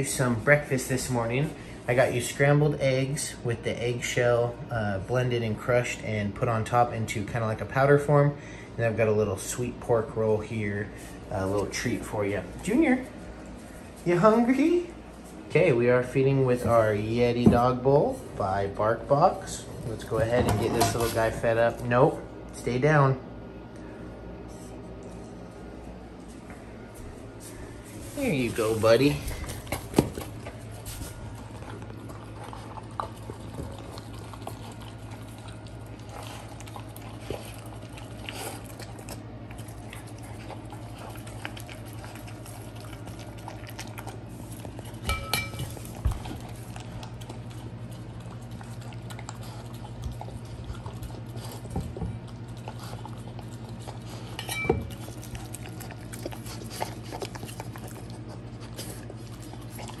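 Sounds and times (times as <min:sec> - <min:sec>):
steady low hum: 0:00.0 - 1:00.0
puppy licking metal bowl: 0:28.6 - 1:00.0
metal bowl ringing: 0:45.1 - 0:45.6, 0:54.4 - 0:54.8.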